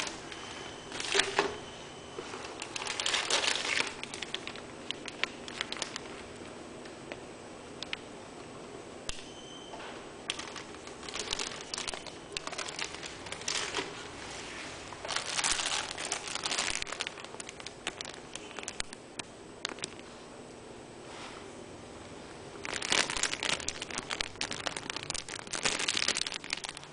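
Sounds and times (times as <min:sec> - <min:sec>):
plastic bags crinkling: 0:00.0 - 0:06.4, 0:10.3 - 0:19.0, 0:19.6 - 0:20.0, 0:22.6 - 0:26.9.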